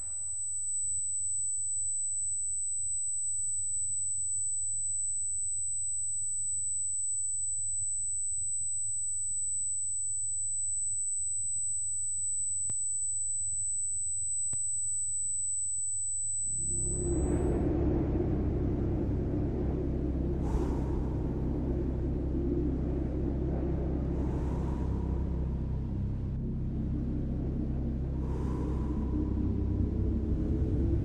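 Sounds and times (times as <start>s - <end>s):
high-pitched ringing tone: 0.0s - 21.0s
low muffled rumble: 16.9s - 31.0s.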